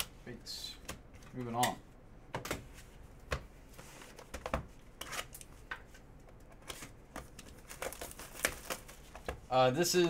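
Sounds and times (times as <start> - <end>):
plastic wrap rustling: 6.6 - 9.7
shrink wrap tearing: 7.5 - 9.0.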